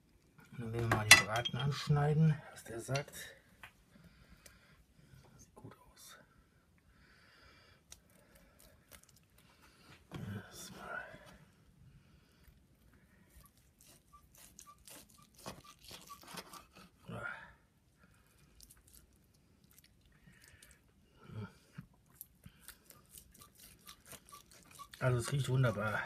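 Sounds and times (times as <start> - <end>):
knife sawing through crackling: 13.4 - 17.1, 22.8 - 26.0.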